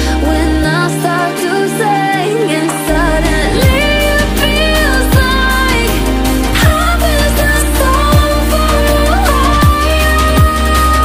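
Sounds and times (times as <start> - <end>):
bending melody: 1.0 - 9.5
deep bass hits dropping in pitch: 2.9 - 6.0.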